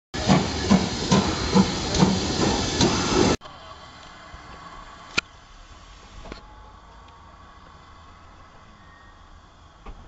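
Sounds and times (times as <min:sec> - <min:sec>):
steam locomotive exhaust beats: 0:00.2 - 0:03.4
loud steady steam hiss: 0:00.2 - 0:10.0.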